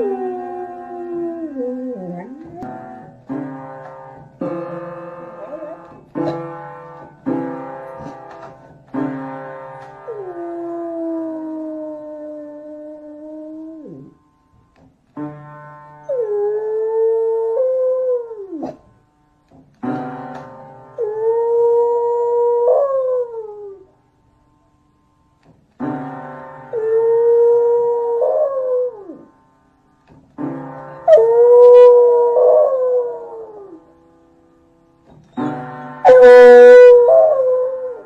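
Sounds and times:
dog howling: 0.0s - 2.7s, 31.1s - 33.8s, 36.0s - 38.0s.

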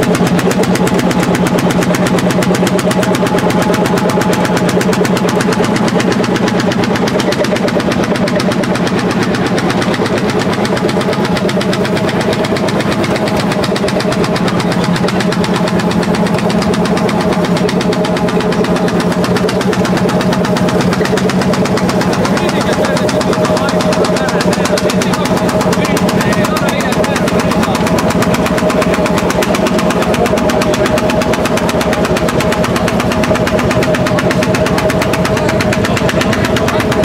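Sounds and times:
tractor engine under load: 0.0s - 37.0s.

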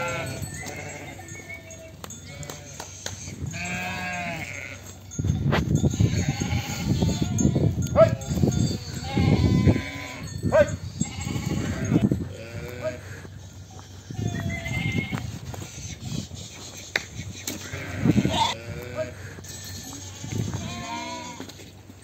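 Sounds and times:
sheep and lambs bleating: 0.0s - 5.0s, 5.8s - 16.0s, 17.5s - 21.6s.

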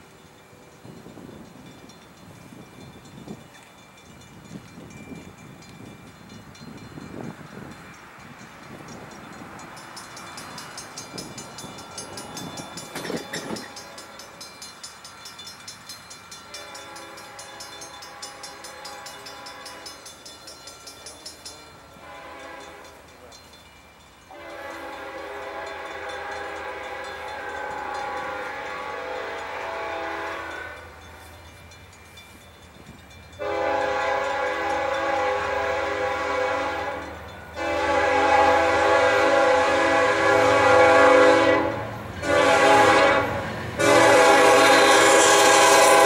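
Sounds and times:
locomotive air horn blasts: 16.5s - 20.0s, 22.0s - 23.0s, 24.3s - 31.2s, 33.4s - 46.0s.

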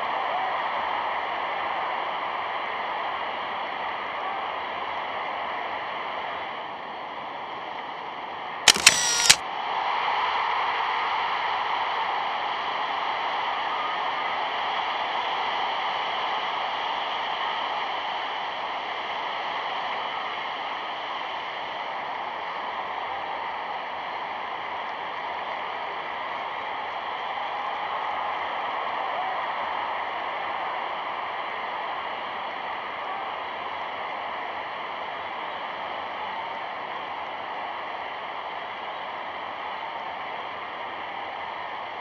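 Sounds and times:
sharp clicks: 8.7s - 9.4s.

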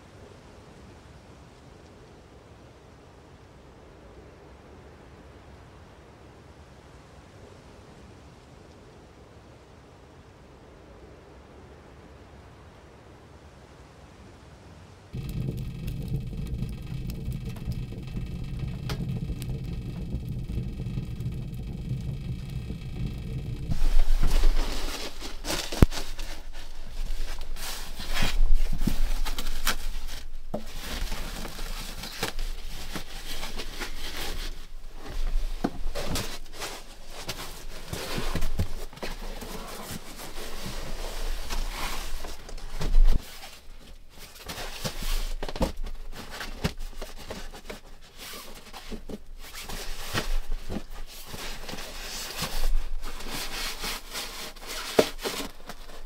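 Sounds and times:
sharp knocks and clicks: 15.2s - 39.1s
fabric and bag rustling: 23.7s - 56.0s.

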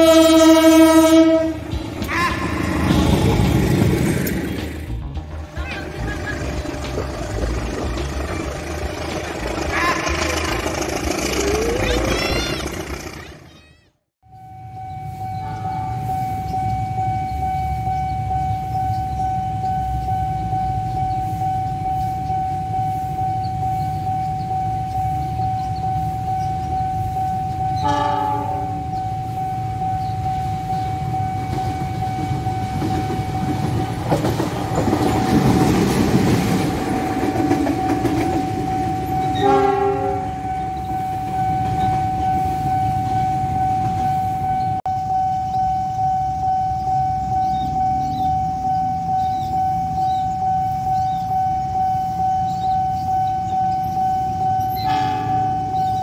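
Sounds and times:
train horn blasts: 0.0s - 3.0s, 14.4s - 22.1s, 26.8s - 33.8s, 37.6s - 44.8s, 52.9s - 56.0s
level-crossing warning alarm: 0.0s - 13.4s, 14.2s - 56.0s
passing train rumbling: 0.0s - 56.0s.

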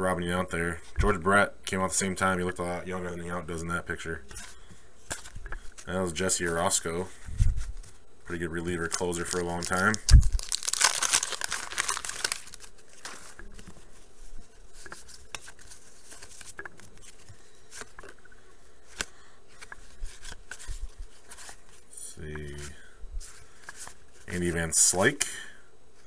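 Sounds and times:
cards rustling: 4.3s - 25.0s
wax paper pack ripping: 8.7s - 13.7s
paper crinkling: 8.7s - 18.2s, 18.9s - 21.8s.

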